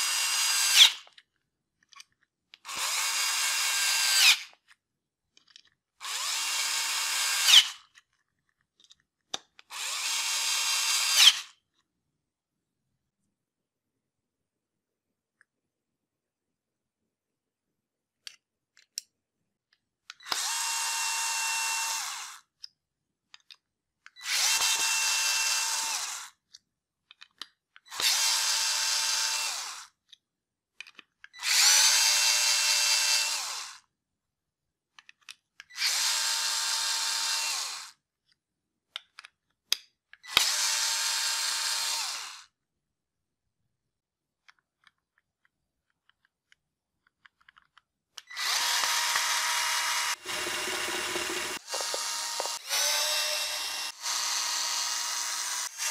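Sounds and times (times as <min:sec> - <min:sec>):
cordless screwdriver motor whine: 0:00.0 - 0:01.1, 0:02.7 - 0:04.6, 0:06.0 - 0:07.8, 0:09.7 - 0:11.5, 0:20.2 - 0:22.4, 0:24.2 - 0:26.3, 0:27.9 - 0:29.9, 0:35.7 - 0:38.0, 0:40.2 - 0:42.5, 0:48.3 - 0:55.9.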